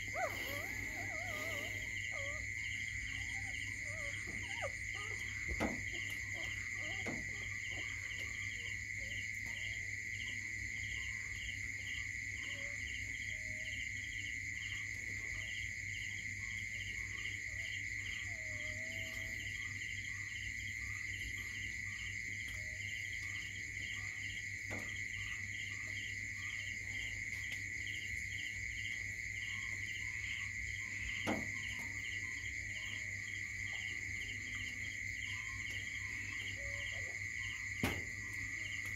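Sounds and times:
insect trilling: 0.0s - 9.8s, 16.4s - 27.2s, 27.8s - 38.9s
insect chirping in pulses: 0.0s - 38.9s.

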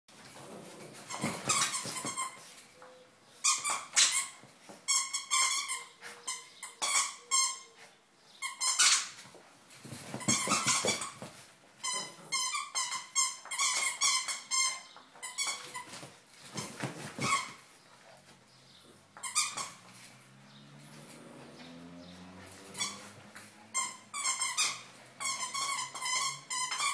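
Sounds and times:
high squeaking toy: 1.1s - 2.4s, 3.4s - 7.8s, 8.4s - 9.2s, 10.1s - 11.2s, 11.8s - 16.0s, 19.2s - 19.8s, 22.7s - 26.9s.

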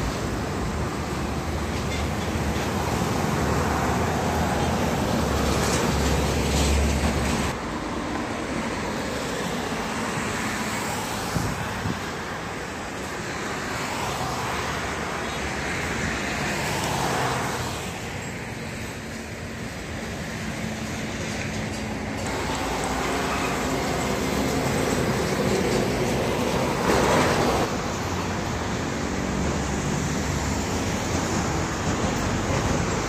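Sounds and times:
highway traffic roar: 0.0s - 33.0s
truck passing: 13.6s - 33.0s.

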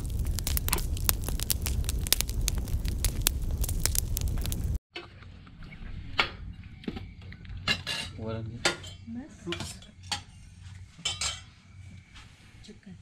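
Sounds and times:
steel plates and pots clinking: 11.0s - 11.5s.

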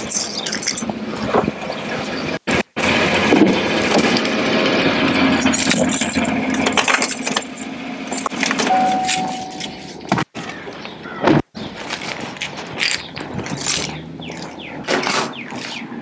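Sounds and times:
keys jangling: 0.0s - 0.9s, 5.0s - 10.1s, 12.8s - 15.7s
truck engine running: 0.0s - 10.6s, 12.3s - 16.0s
steady single-pitch chime: 8.4s - 10.1s
rustling: 11.7s - 14.6s.

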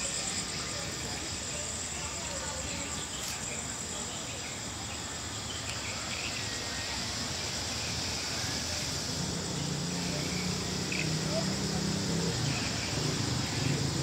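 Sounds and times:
night insects trilling: 0.0s - 14.0s.

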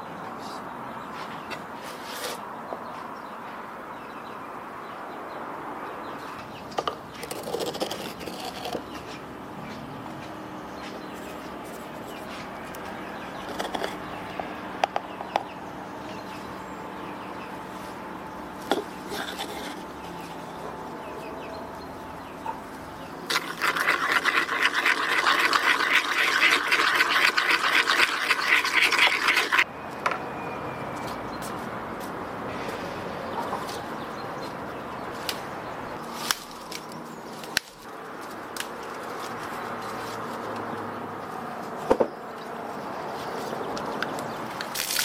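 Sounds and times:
stirring liquid in wooden bowl: 7.2s - 9.0s, 11.2s - 14.2s, 18.7s - 20.0s, 23.3s - 29.7s.

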